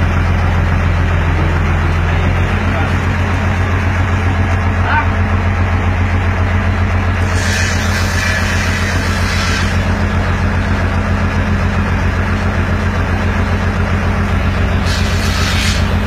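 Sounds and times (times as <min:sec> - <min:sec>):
diesel truck engine running: 0:00.0 - 0:16.0
high hiss: 0:14.8 - 0:16.0.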